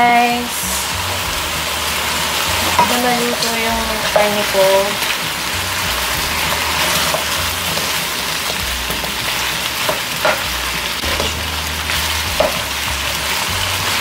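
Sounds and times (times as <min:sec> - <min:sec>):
meat sizzling in a pan: 0:00.0 - 0:14.0
spatula stirring: 0:05.1 - 0:10.4.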